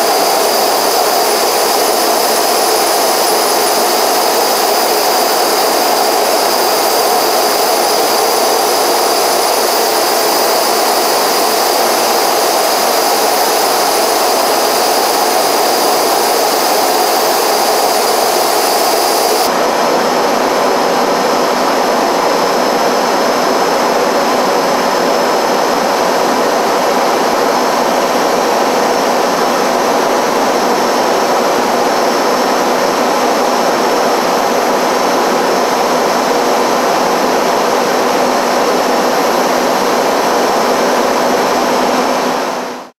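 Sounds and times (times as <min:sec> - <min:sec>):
jet aircraft cabin noise: 0:00.0 - 0:19.8.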